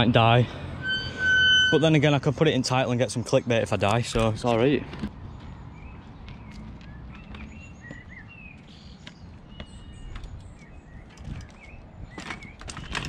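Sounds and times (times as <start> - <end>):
small birds chirping: 3.2 - 13.0.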